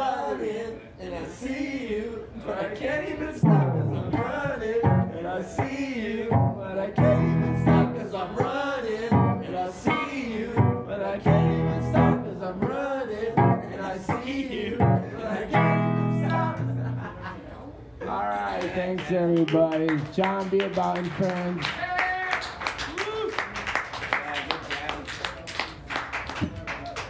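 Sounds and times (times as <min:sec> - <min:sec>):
man singing into a microphone: 0:00.0 - 0:16.7
looped electric guitar: 0:09.2 - 0:12.3, 0:14.8 - 0:17.2.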